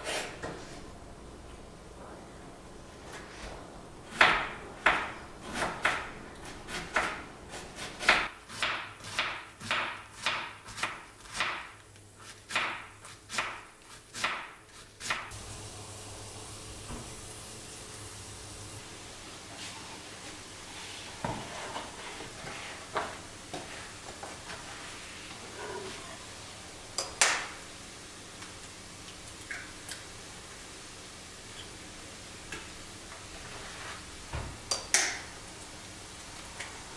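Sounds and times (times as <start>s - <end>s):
knife cutting cabbage on board: 4.1s - 15.3s.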